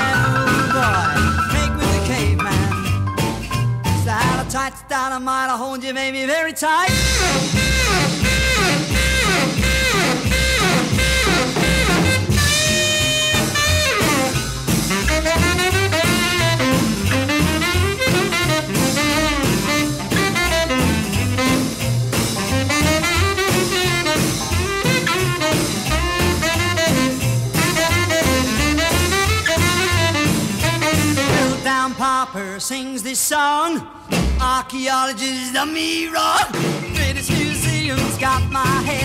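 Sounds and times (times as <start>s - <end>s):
bass line: 0.0s - 4.9s, 6.9s - 32.7s, 34.1s - 34.8s, 36.5s - 39.0s
drums: 0.0s - 5.2s, 6.8s - 39.0s
saxophone solo: 6.9s - 32.1s.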